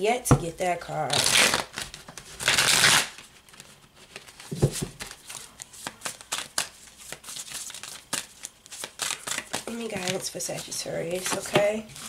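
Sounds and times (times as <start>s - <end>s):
cards riffle shuffled: 1.2s - 12.0s
cards clicking and slapping: 3.6s - 10.2s.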